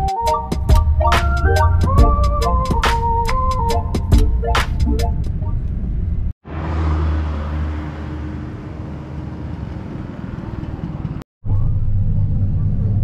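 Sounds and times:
bus engine rumble: 0.6 - 13.0
vehicle passing by: 5.3 - 13.0.

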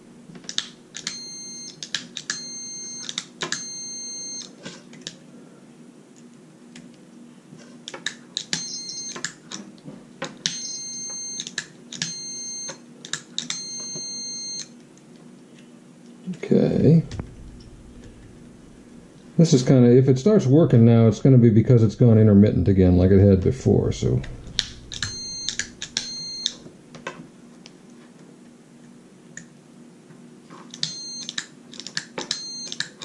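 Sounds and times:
multimeter continuity beeps: 1.0 - 4.5, 8.5 - 9.3, 10.5 - 12.8, 13.4 - 14.7, 24.2 - 26.7, 30.8 - 31.5, 32.3 - 33.0.

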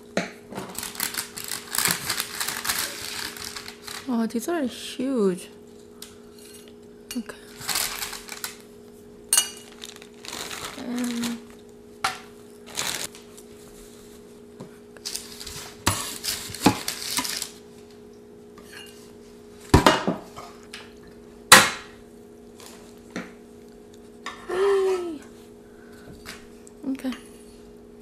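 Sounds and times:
faint steady hum: 0.0 - 28.0
crackly handling of crisp tortillas: 0.7 - 4.1, 7.5 - 18.1.

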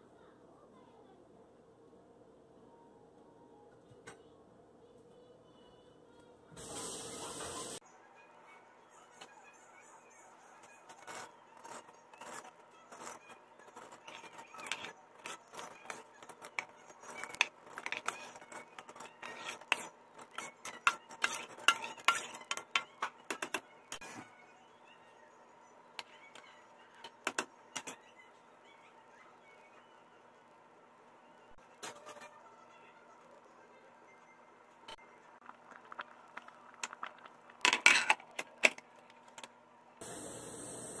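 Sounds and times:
spoon scraping steel plate: 11.0 - 22.9.

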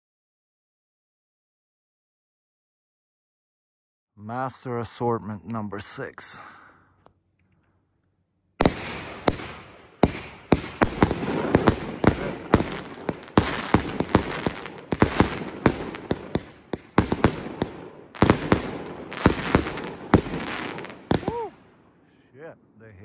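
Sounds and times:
firework crackling: 8.6 - 21.7
firework bangs: 8.6 - 21.9.

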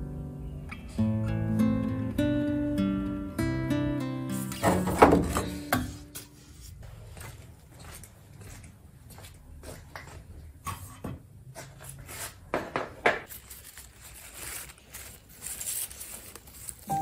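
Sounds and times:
flip-flop footsteps on concrete: 6.5 - 13.3
leaves and plastic glove rustling: 13.3 - 17.0.

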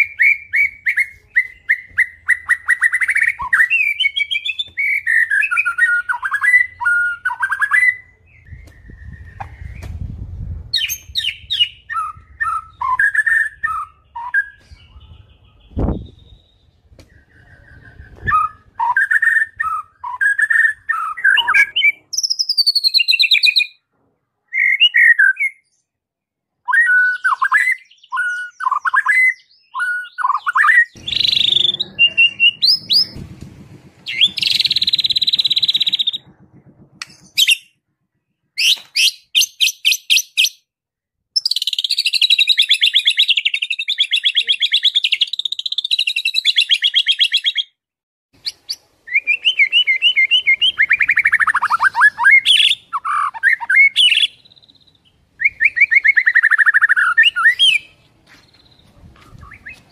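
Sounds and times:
bird singing whistled phrases: 0.0 - 9.9, 10.8 - 23.8, 24.5 - 25.8, 26.6 - 33.2, 34.1 - 36.2, 41.4 - 47.7, 48.4 - 58.0
bird trill: 26.7 - 33.2, 34.1 - 36.2, 48.4 - 58.8.

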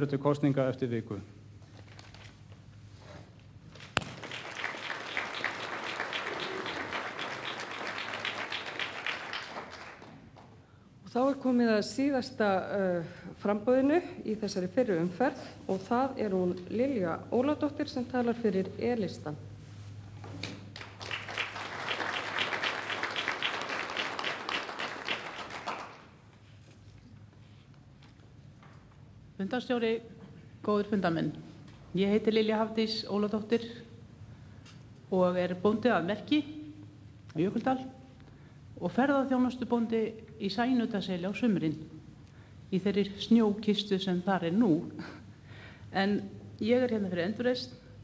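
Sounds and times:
audience applause: 4.0 - 10.3, 20.8 - 26.2.

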